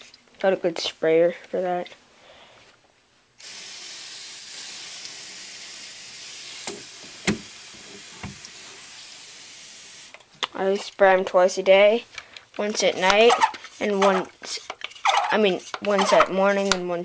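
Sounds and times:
water sprayer hissing: 3.4s - 10.2s, 12.7s - 16.7s.

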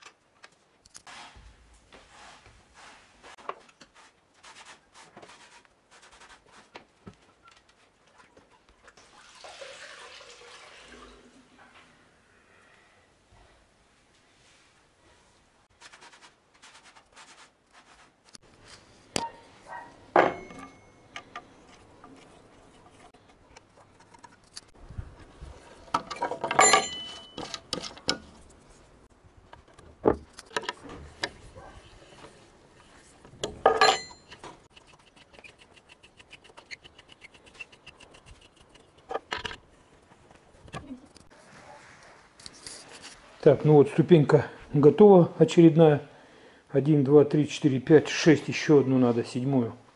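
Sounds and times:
metal clanks on workbench: 20.1s - 21.4s, 25.9s - 28.2s, 33.6s - 34.4s
nuts and bolts clinking: 20.1s - 23.0s, 25.8s - 28.4s, 33.4s - 34.6s.

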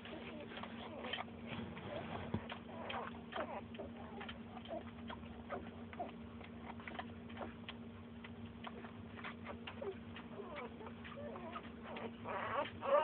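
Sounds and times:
puppies suckling: 0.0s - 13.0s
puppy squeaks: 0.1s - 4.8s, 9.2s - 13.0s.

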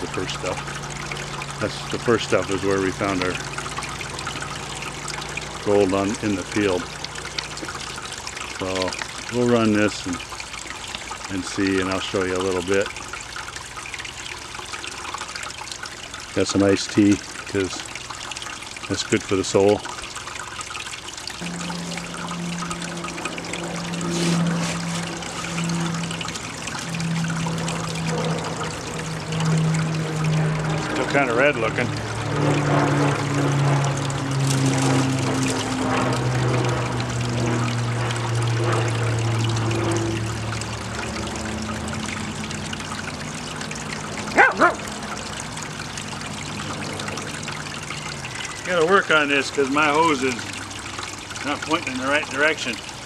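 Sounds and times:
water running down a sluice box: 0.0s - 53.0s
low hum: 19.8s - 51.6s
dog barking: 44.4s - 44.9s.

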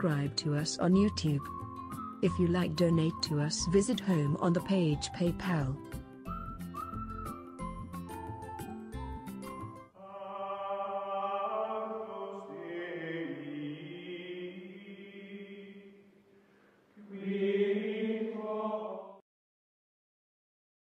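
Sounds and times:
choir-like chanting: 10.0s - 16.0s, 17.0s - 19.2s.

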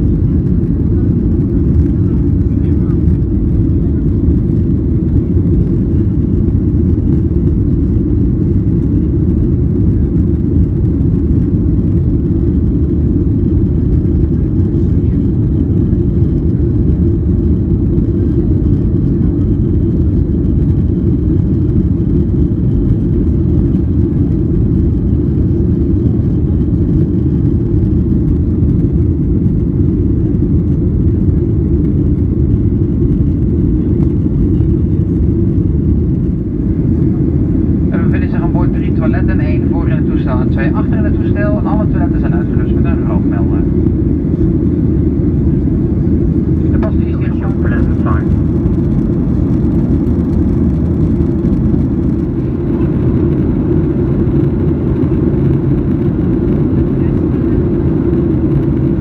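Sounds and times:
jet engines at climb thrust: 0.0s - 59.0s.

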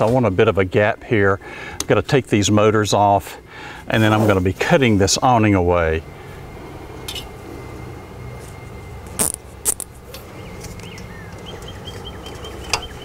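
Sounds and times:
outdoor background noise: 0.0s - 13.0s
high insect chirps: 8.2s - 13.0s.

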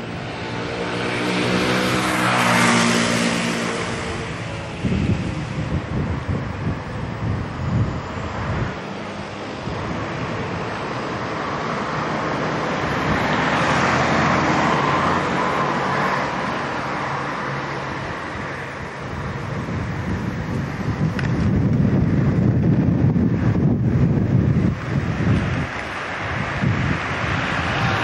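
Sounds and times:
car driving past: 0.0s - 5.6s, 8.9s - 18.6s
city street traffic: 0.0s - 28.0s.

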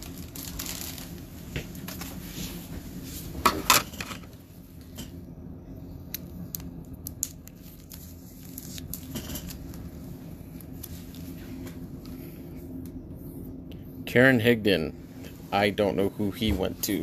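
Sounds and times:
plastic packaging crinkle: 0.0s - 2.1s, 6.5s - 11.3s.

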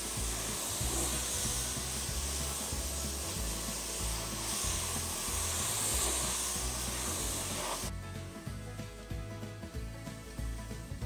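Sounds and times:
pressure washer spraying water: 0.0s - 7.9s.

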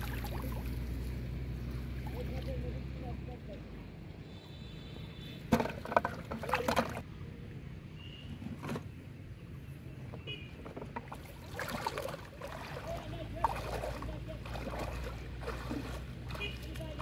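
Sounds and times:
knocks against plastic bucket: 5.5s - 7.0s
wading steps splashing: 10.8s - 17.0s.

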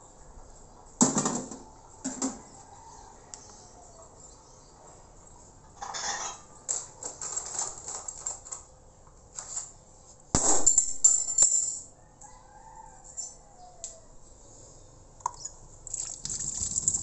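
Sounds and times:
metal utensils clinking: 5.8s - 6.5s.

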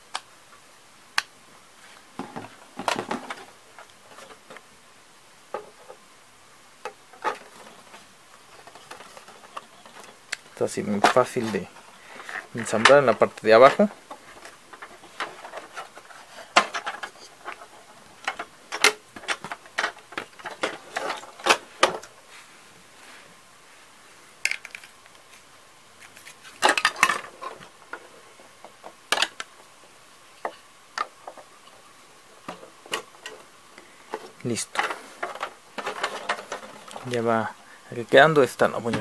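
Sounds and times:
plastic parts clicking and clacking: 6.8s - 22.1s, 24.4s - 25.0s, 26.1s - 29.6s, 32.4s - 33.5s, 34.1s - 37.2s.

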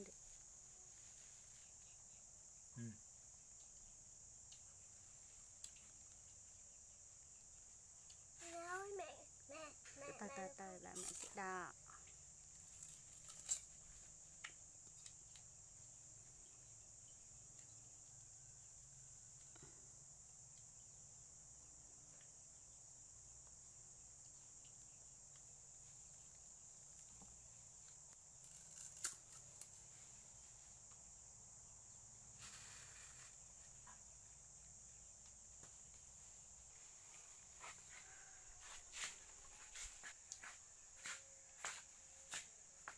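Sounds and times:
insects droning: 0.0s - 42.9s
short rustle: 32.4s - 33.8s.

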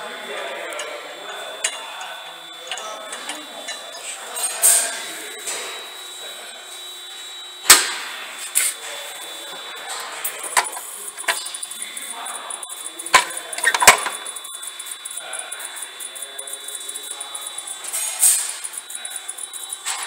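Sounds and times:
faint high whine: 0.0s - 20.0s.

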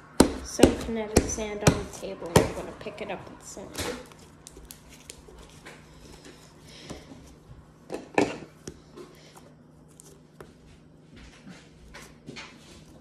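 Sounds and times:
slime squishing: 3.6s - 7.5s.

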